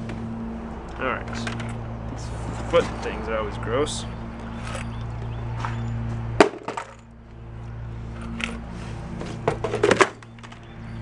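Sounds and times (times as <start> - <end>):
hard objects knocking and clattering: 6.4 - 7.0, 9.3 - 10.6.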